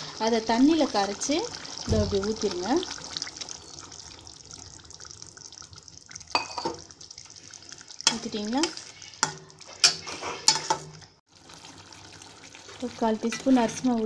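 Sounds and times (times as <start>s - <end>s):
boiling gravy hissing: 0.0s - 14.0s
ladle scraping and knocking pot: 8.1s - 11.1s.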